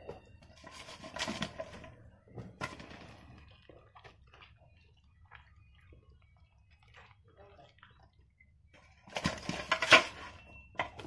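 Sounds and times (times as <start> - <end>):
florets mixed in thick batter: 0.0 - 11.0.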